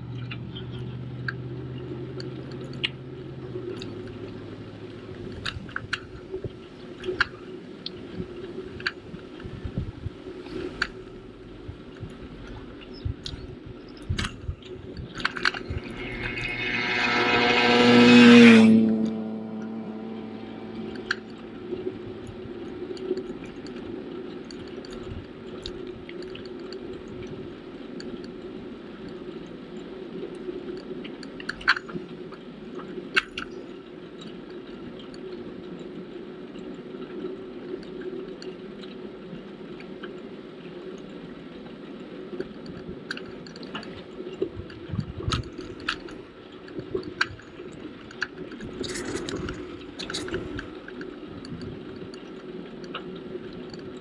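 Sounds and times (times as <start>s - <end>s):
bicycle tyre and drivetrain noise: 0.0s - 54.0s
bike clicks and rattles: 30.8s - 32.1s, 42.4s - 54.0s.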